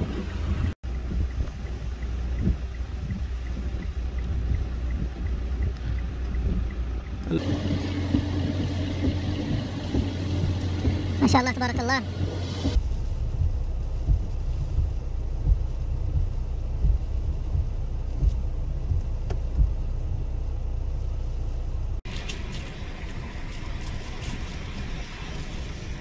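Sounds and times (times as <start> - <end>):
rushing wind noise: 0.0 - 19.8
wind buffeting microphone: 0.0 - 19.8.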